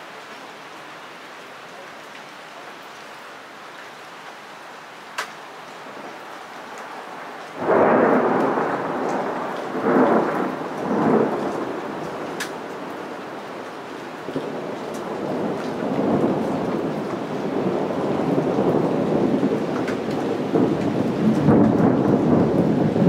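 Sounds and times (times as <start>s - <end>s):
steady rain hiss: 0.0s - 23.0s
loud thunder crack rolling: 7.6s - 13.7s, 14.3s - 23.0s.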